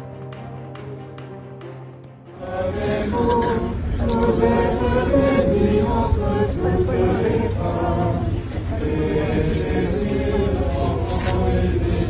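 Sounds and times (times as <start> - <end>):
crowd singing a hymn: 2.4 - 12.0.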